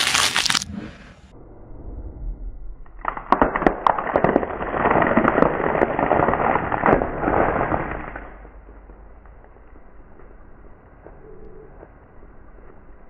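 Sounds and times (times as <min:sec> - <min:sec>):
tyre crushing ice cream cones: 0:00.0 - 0:00.6.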